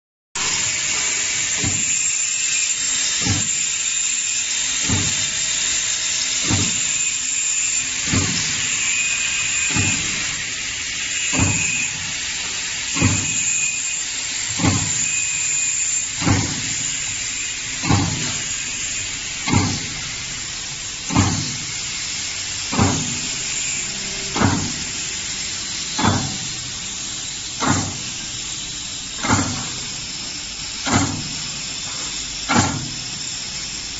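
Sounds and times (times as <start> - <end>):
machine mechanical hiss: 0.4 - 33.9.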